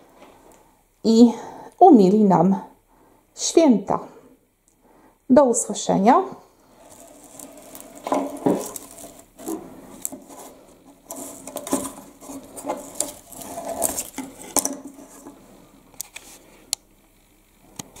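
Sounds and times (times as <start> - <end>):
dry twigs and ribbon rustling: 6.6 - 16.5.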